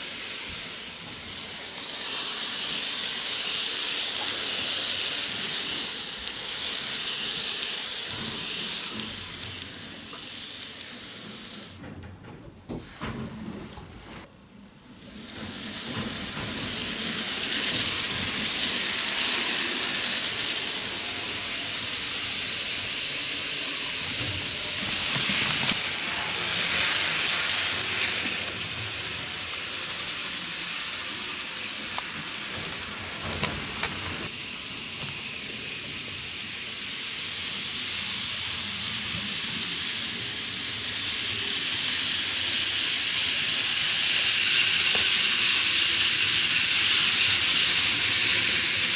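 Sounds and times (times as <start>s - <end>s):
model train wheels rattling: 0.0s - 11.8s, 14.9s - 48.9s
wheels clicking over track joints: 0.0s - 12.1s, 15.0s - 36.4s.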